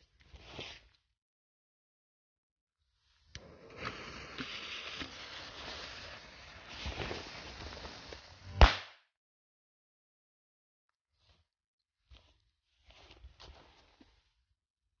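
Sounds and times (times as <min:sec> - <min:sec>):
firecracker fuse hissing and sputtering: 0:03.6 - 0:08.8
firecracker bang: 0:08.6 - 0:08.9.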